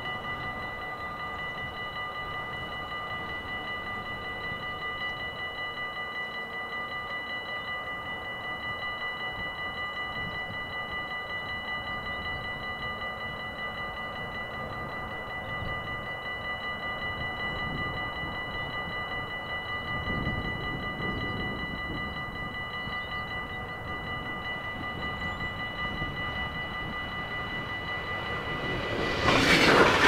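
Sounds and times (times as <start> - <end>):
level-crossing warning bell: 0.0 - 30.0.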